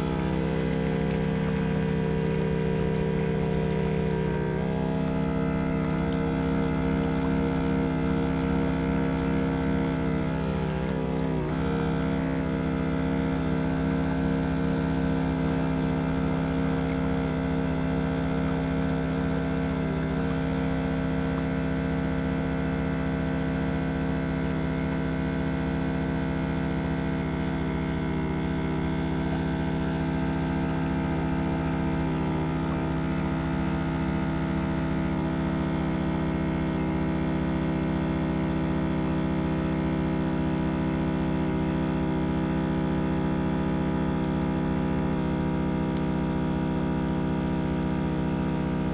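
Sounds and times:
motor humming steadily: 0.0s - 48.9s.

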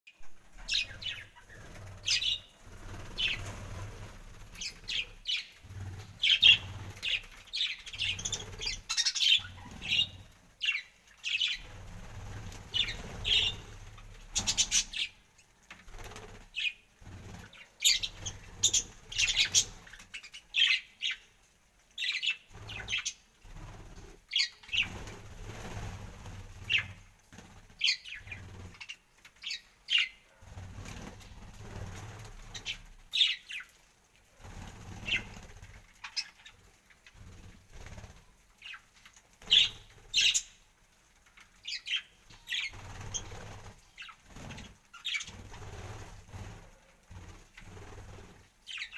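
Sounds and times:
wings fluttering: 0.2s - 21.2s, 22.0s - 48.9s
budgerigars chirping: 0.6s - 3.5s, 4.6s - 11.7s, 12.7s - 13.6s, 17.9s - 19.8s, 39.5s - 40.5s.

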